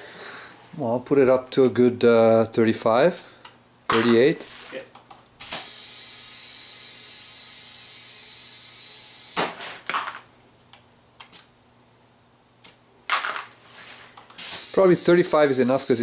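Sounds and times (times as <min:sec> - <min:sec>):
short sharp air blasts: 0:05.4 - 0:06.0, 0:13.8 - 0:16.0
compressed air hissing into tyre: 0:05.4 - 0:09.8, 0:13.6 - 0:16.0.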